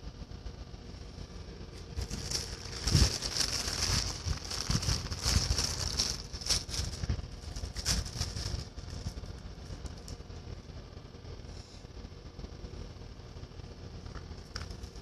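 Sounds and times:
rustling and crackling: 1.2s - 10.6s.

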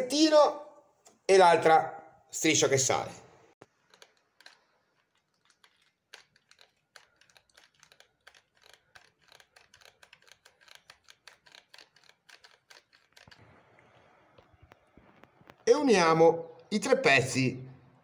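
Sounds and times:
glue gun trigger clicking: 3.8s - 13.4s.

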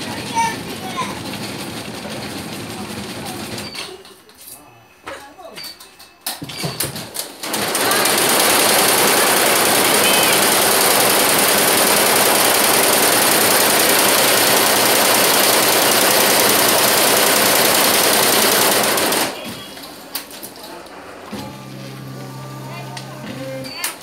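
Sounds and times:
sharp machine clicks: 7.4s - 19.4s
embroidery machine running: 7.4s - 19.5s.

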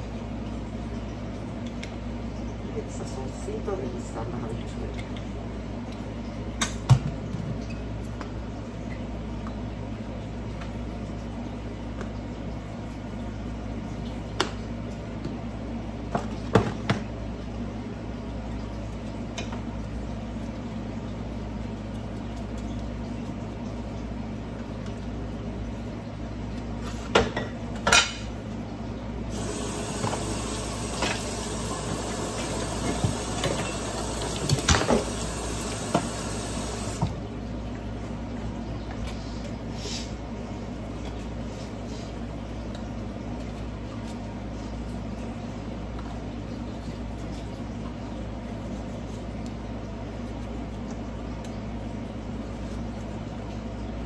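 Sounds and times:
steady low hum: 17.1s - 54.0s.

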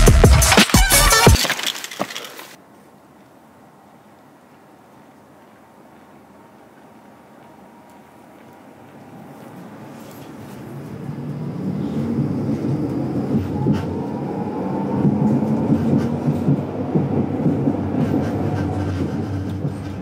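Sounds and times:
tram wheels rumbling on rails: 4.0s - 20.0s.

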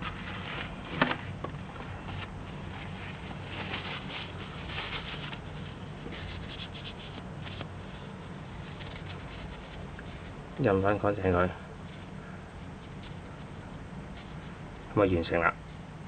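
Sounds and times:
tissue rubbing plastic cartridge: 2.6s - 10.4s.

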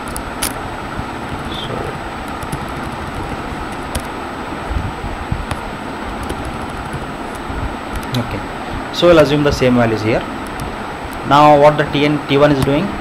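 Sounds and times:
background hiss and low rumble: 0.0s - 13.0s.

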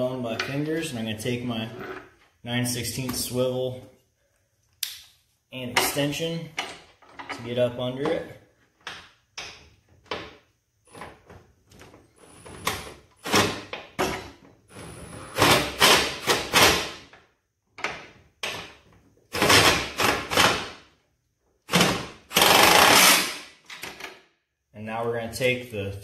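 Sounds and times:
cordless impact gun bursts: 21.7s - 23.5s.

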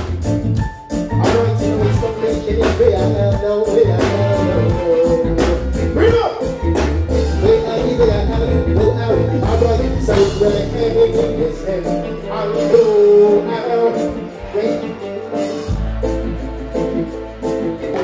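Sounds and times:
deep bass: 0.0s - 13.6s
live reggae band: 0.0s - 18.0s
man singing: 1.0s - 18.0s.

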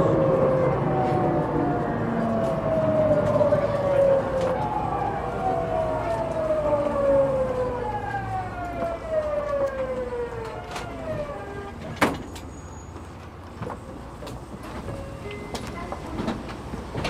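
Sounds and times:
electric train inverter whine: 0.0s - 17.0s.

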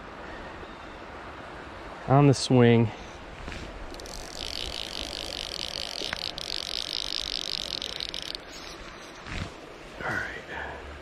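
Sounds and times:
fishing reel drag ratcheting: 3.9s - 9.5s.

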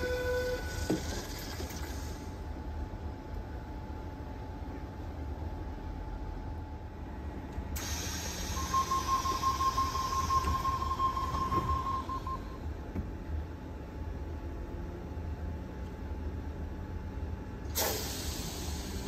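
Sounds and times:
train humming: 0.0s - 19.0s
hiss of air: 7.8s - 8.8s, 17.7s - 19.0s
door closing warning tone: 8.2s - 12.7s.

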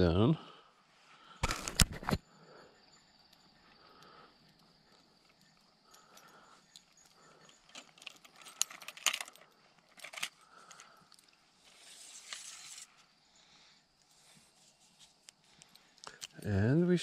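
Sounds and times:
soft rustle: 4.9s - 16.2s
fishing tackle clicking and rattling: 5.2s - 11.4s.

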